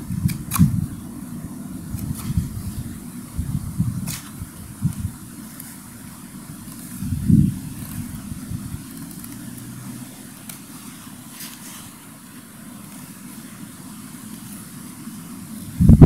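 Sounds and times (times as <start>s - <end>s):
wind on microphone: 0.0s - 5.4s, 6.5s - 9.2s, 15.6s - 16.0s
knife shaving wooden stick: 4.0s - 15.8s.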